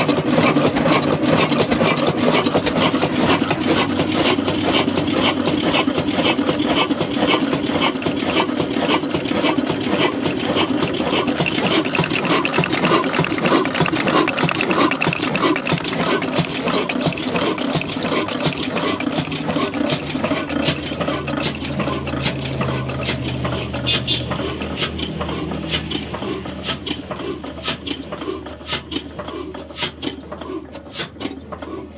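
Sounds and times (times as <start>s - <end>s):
diesel engine clattering: 0.0s - 31.9s.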